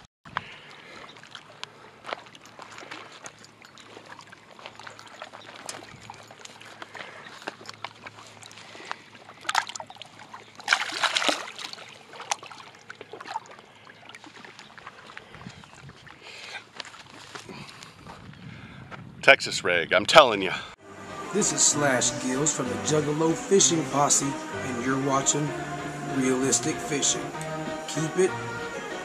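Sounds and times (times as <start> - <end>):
water splashing at shoreline: 0.3 - 17.3.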